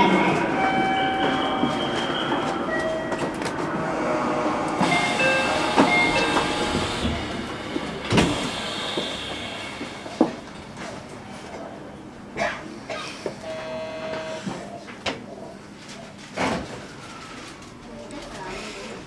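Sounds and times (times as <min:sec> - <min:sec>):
station rail noise: 0:00.0 - 0:19.0.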